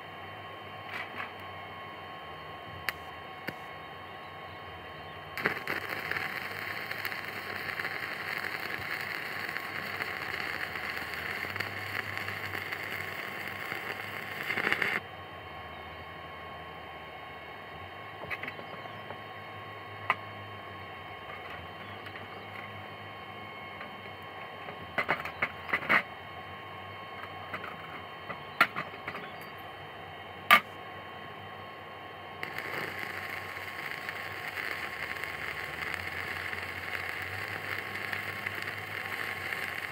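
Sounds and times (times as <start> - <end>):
welding arc crackling and hissing: 2.8 - 3.7, 5.4 - 15.0, 32.4 - 39.9.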